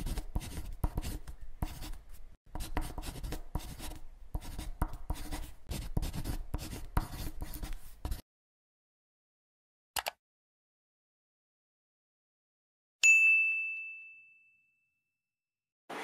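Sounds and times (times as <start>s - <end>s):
pen scratching on paper: 0.0s - 8.2s.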